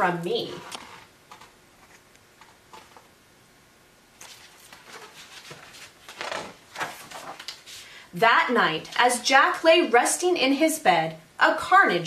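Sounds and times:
book pages turning: 0:04.2 - 0:07.9.

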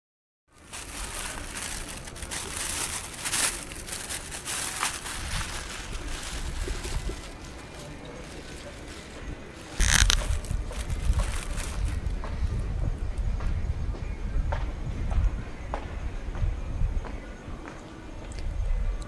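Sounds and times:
plastic bag crinkling: 0:00.5 - 0:12.1.

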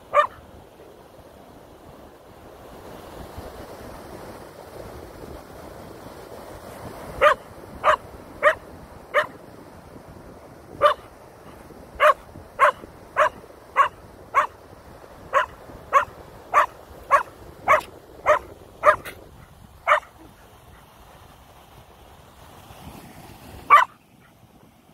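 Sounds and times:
dog barking sharply: 0:00.1 - 0:00.4, 0:07.2 - 0:08.6, 0:09.2 - 0:09.4, 0:10.8 - 0:11.0, 0:12.0 - 0:14.6, 0:15.3 - 0:19.2, 0:19.9 - 0:20.3, 0:23.7 - 0:24.0.

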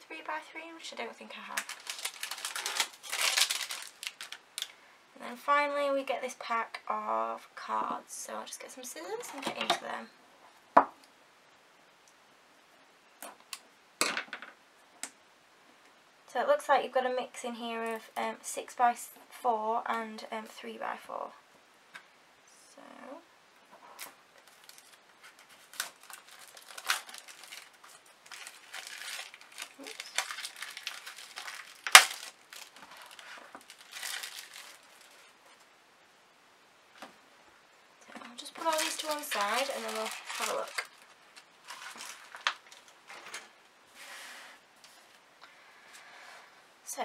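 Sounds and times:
paper cards rustling: 0:01.4 - 0:04.7, 0:24.4 - 0:35.6, 0:38.4 - 0:43.3
scissors cutting wrapping: 0:01.5 - 0:04.4, 0:24.6 - 0:34.8, 0:38.6 - 0:41.0.

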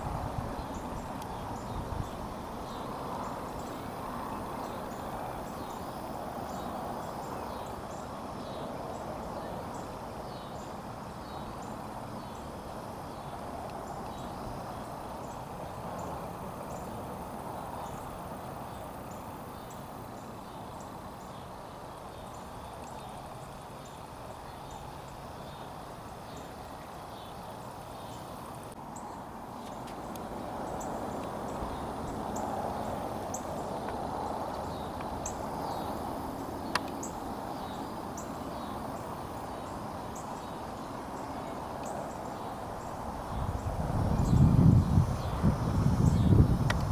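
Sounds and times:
faint high ticks: 0:33.2 - 0:35.4, 0:36.6 - 0:37.2, 0:46.6 - 0:46.9.

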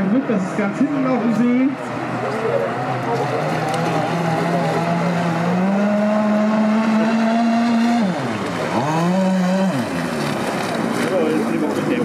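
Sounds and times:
model boat motor whining: 0:01.0 - 0:12.0.

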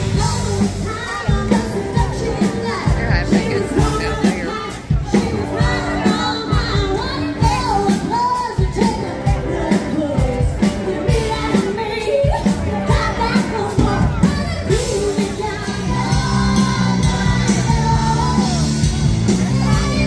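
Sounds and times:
live band playing pop-rock: 0:00.0 - 0:20.0
person singing: 0:00.0 - 0:20.0
steady drum beat: 0:00.0 - 0:20.0.

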